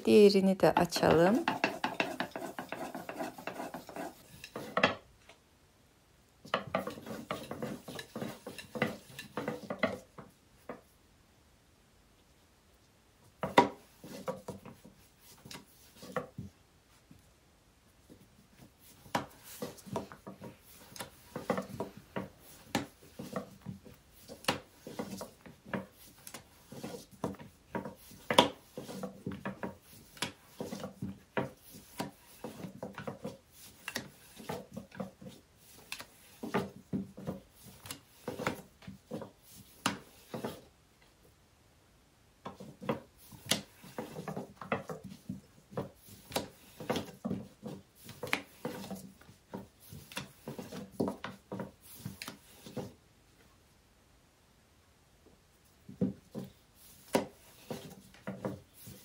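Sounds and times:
rolling pin rubbing on dough: 0.7 - 5.0, 6.4 - 10.9, 13.3 - 17.1, 18.0 - 40.8, 42.4 - 53.0, 55.9 - 59.0
rolling pin wooden knocks: 0.7 - 5.1, 18.9 - 40.7.

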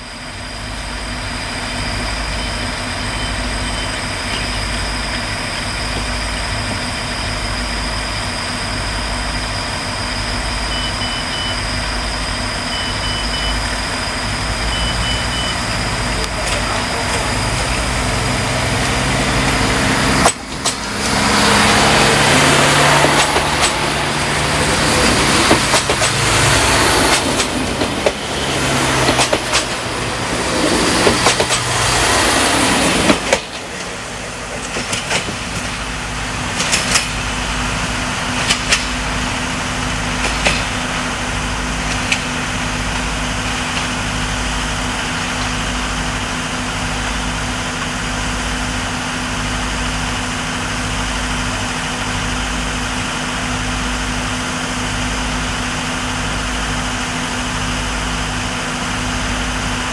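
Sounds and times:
train wheels rushing on rails: 0.0 - 59.9
diesel engine idling: 14.7 - 36.6.

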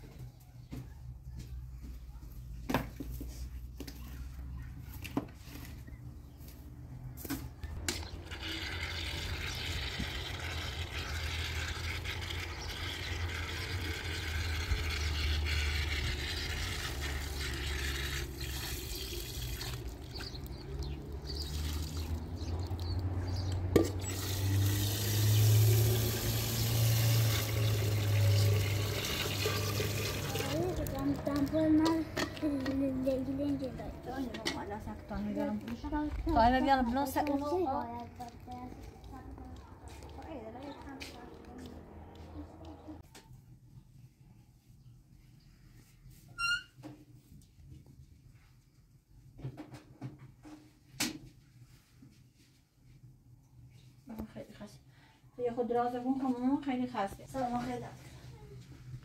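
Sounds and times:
water running: 8.0 - 31.9.

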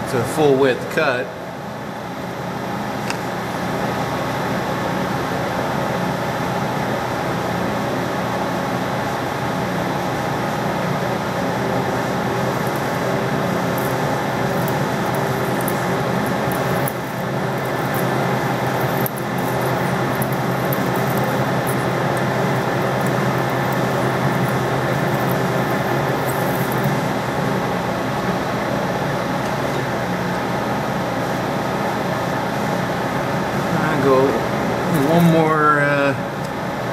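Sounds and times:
metal lathe motor droning: 11.9 - 28.0
tool cutting metal: 12.5 - 27.1.

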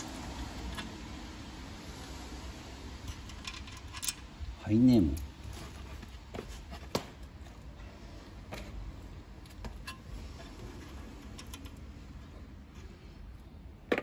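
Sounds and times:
metallic clicks of nuts and washers: 3.0 - 4.4, 9.4 - 12.0.

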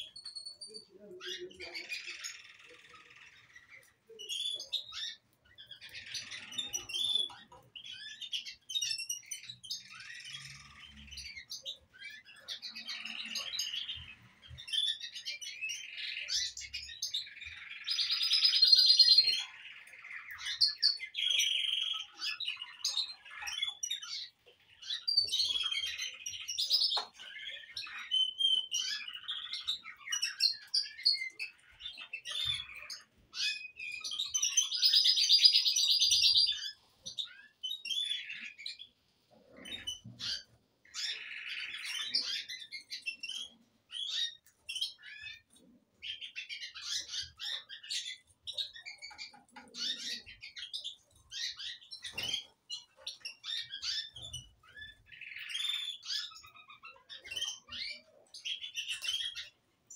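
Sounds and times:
canaries singing: 0.0 - 59.9.

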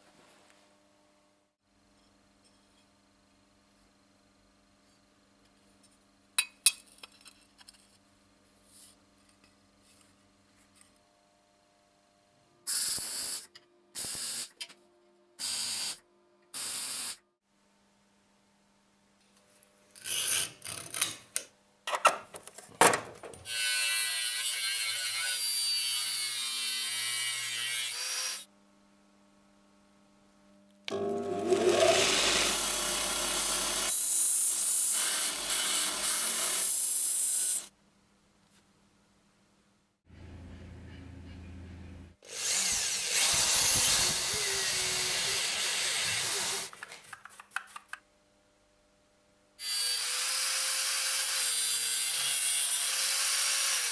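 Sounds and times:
belt grinder whining on steel: 30.9 - 34.1, 42.3 - 46.7.

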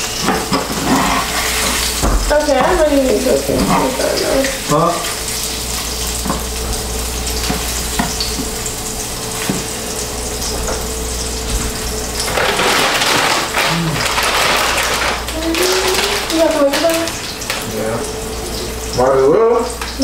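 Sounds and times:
food sizzling in a frying pan: 0.0 - 20.0
plastic bag rustling: 11.6 - 17.7.

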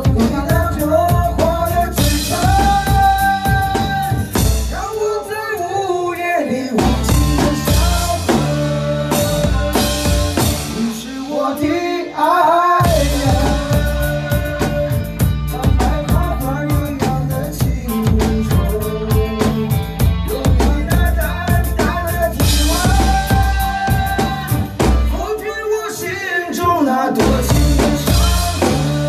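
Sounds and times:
acoustic drum kit: 0.0 - 29.0
pop song with vocal and band: 0.0 - 29.0.

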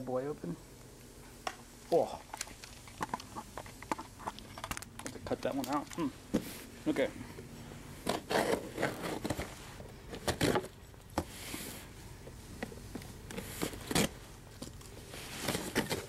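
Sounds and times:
cardboard scraping hiss: 6.1 - 16.0.

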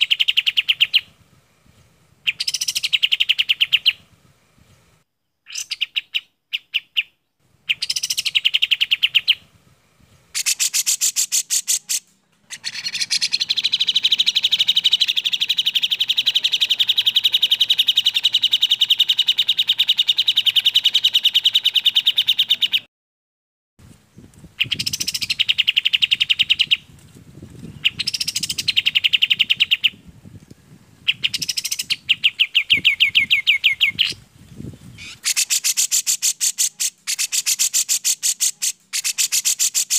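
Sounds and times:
bird song trills: 0.0 - 22.9, 24.1 - 26.9, 27.6 - 30.0, 31.0 - 39.9.

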